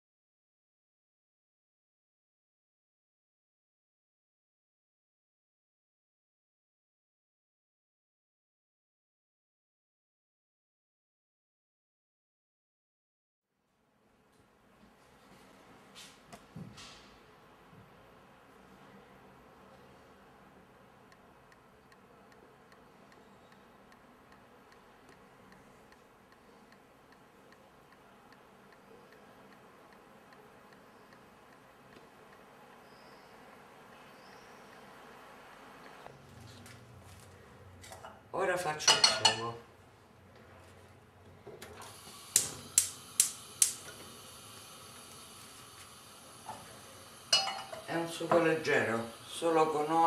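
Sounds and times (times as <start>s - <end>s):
soft regular ticking: 21.0s - 36.1s
spark igniter clicking: 41.8s - 44.1s
gas hissing: 41.8s - 50.0s.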